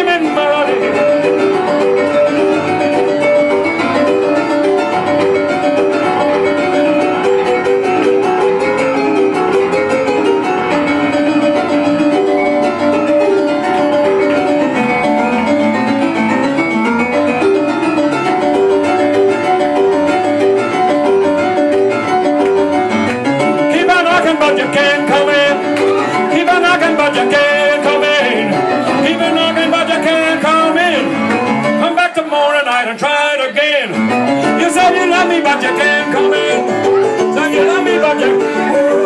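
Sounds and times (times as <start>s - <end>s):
man singing with vibrato: 0.0s - 5.0s, 23.4s - 39.0s
rock and roll piano: 0.0s - 39.0s.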